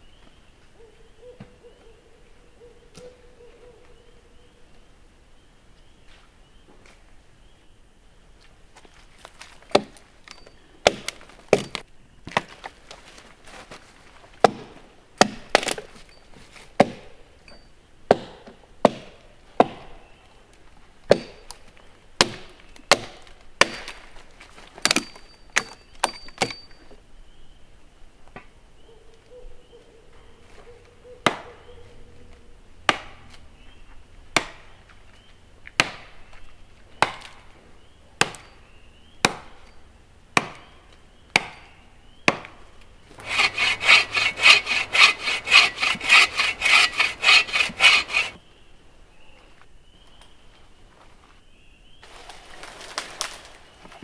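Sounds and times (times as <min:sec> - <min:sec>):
hand saw cutting tree trunk: 0:09.3 - 0:11.8, 0:43.1 - 0:48.4
hatchet chopping wood: 0:09.4 - 0:12.6, 0:14.4 - 0:15.9, 0:16.8 - 0:17.2, 0:18.1 - 0:19.9, 0:21.1 - 0:21.6, 0:22.2 - 0:24.1, 0:24.8 - 0:26.7, 0:32.9 - 0:33.3, 0:34.4 - 0:34.7, 0:35.8 - 0:36.1, 0:37.0 - 0:37.4, 0:38.2 - 0:38.5, 0:39.2 - 0:39.8, 0:40.4 - 0:42.6, 0:43.2 - 0:48.4.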